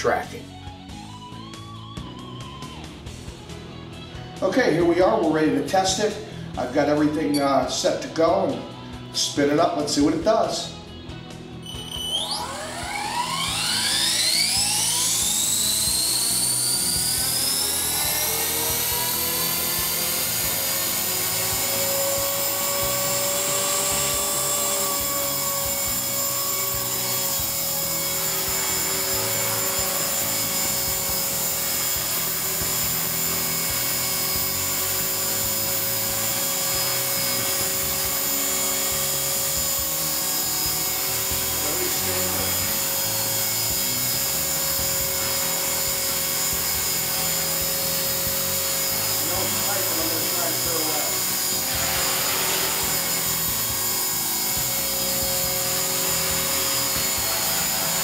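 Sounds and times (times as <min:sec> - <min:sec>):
rc helicopter rotor whine: 0:11.6 - 0:58.0.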